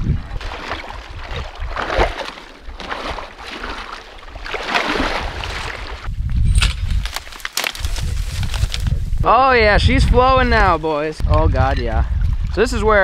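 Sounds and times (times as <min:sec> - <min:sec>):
water sloshing and splashing: 0:00.0 - 0:06.1
water spilling through gap: 0:00.0 - 0:06.1.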